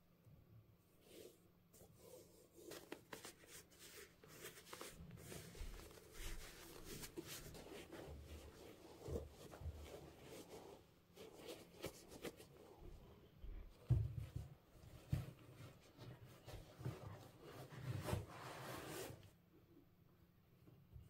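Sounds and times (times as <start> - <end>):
gloved hands rustling on leather: 1.8 - 12.7.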